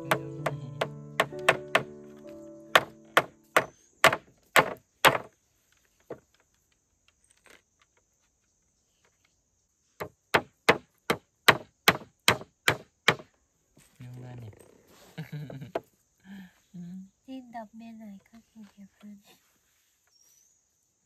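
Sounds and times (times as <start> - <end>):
blade chopping on wood: 0.0 - 1.9, 2.8 - 5.3, 10.0 - 13.3.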